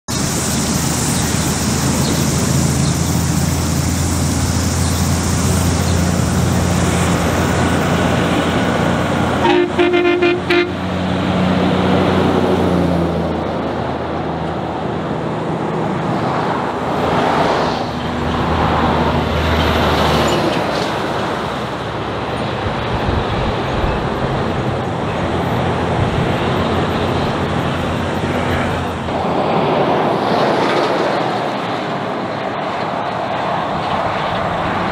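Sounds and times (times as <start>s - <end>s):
trucks driving past: 0.1s - 34.9s
truck horn: 9.3s - 11.1s.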